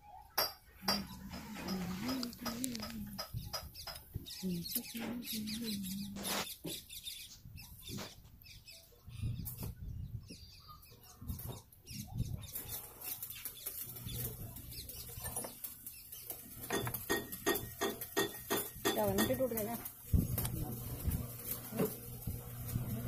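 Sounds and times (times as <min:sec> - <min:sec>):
low steady hum: 0:16.5 - 0:23.0.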